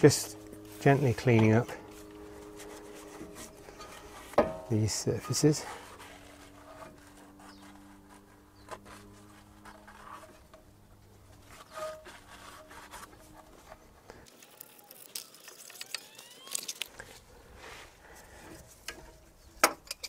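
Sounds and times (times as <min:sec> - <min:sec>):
cloth wiping brake caliper: 0:00.0 - 0:14.1.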